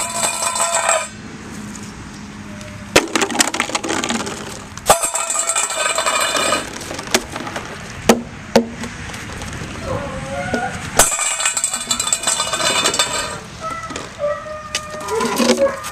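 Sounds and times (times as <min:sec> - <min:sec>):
plastic bucket clattering on concrete: 0:03.0 - 0:08.9, 0:15.1 - 0:15.8.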